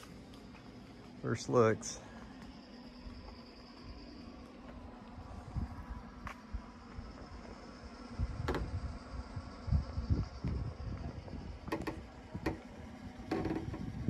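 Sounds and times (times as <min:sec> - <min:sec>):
wind buffeting microphone: 0:05.2 - 0:07.4, 0:08.0 - 0:14.0.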